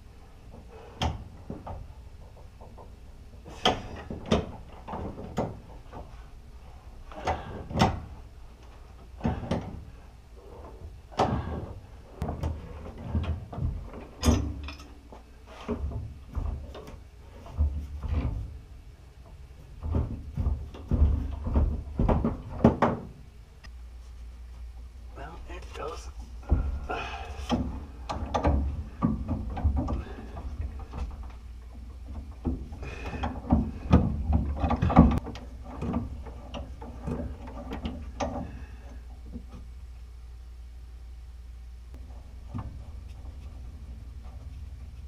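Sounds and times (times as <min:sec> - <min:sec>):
metal knocks and rattles: 0:19.2 - 0:23.2, 0:27.4 - 0:38.6.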